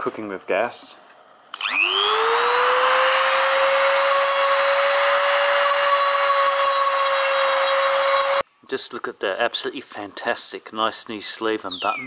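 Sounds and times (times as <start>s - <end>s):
rotary tool whine grinding: 1.6s - 8.4s.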